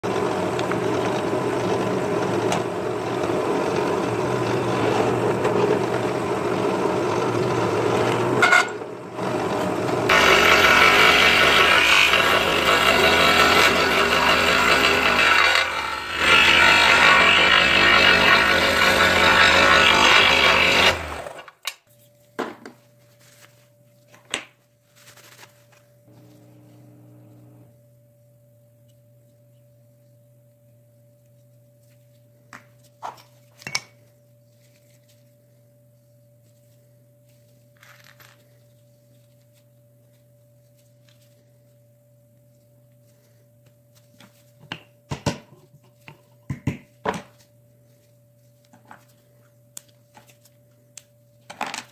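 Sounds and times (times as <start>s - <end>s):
scroll saw cutting wood: 0.2s - 21.5s
faint steady hum: 21.6s - 51.9s.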